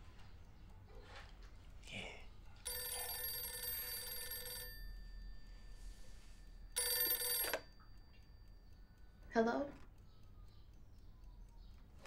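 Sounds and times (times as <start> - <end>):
telephone bell ringing: 2.7 - 6.0, 6.7 - 8.0.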